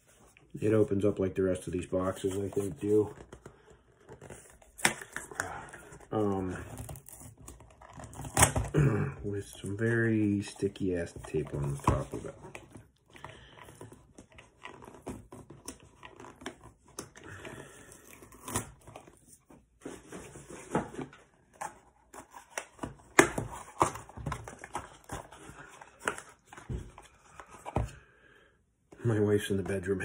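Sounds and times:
cardboard rustling and tearing: 1.9 - 8.7, 13.8 - 27.7.

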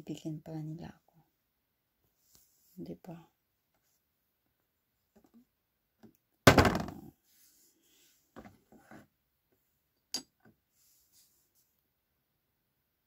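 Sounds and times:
objects set down in plastic box: 6.5 - 7.1.

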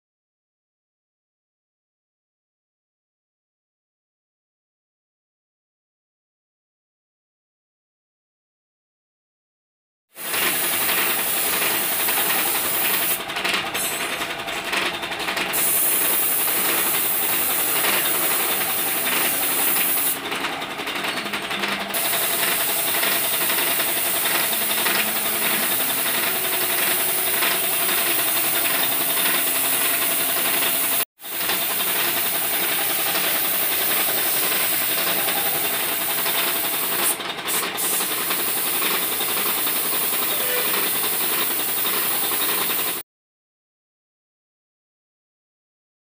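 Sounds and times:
spray gun hissing: 10.2 - 13.2, 15.5 - 20.2, 21.9 - 43.0.

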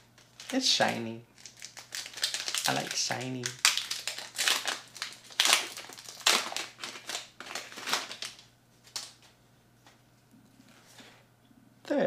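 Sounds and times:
foil wrapper crinkling: 0.0 - 9.3.

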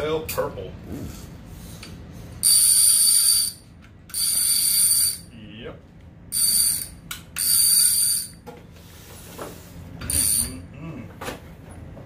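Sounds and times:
fishing reel clicker buzzing: 2.4 - 5.3, 6.3 - 8.4, 10.1 - 10.5.

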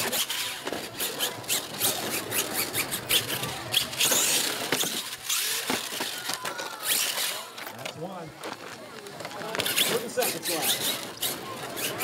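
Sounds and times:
quick knocks and clatters: 0.0 - 8.6
toy truck tyres crunching gravel: 0.0 - 12.0.

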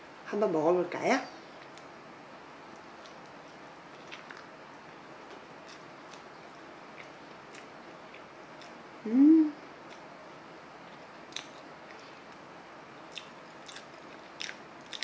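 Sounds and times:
person chewing food: 2.7 - 8.8, 10.8 - 12.4, 13.1 - 15.0
person humming mm: 9.0 - 9.6.

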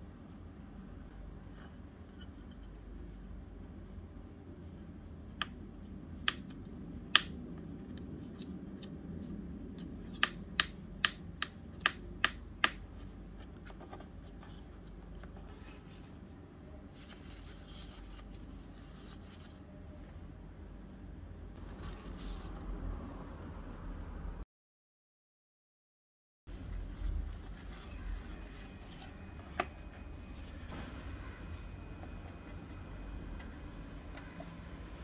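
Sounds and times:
faint paper rustling: 13.4 - 20.2, 21.6 - 22.7, 26.5 - 32.8.

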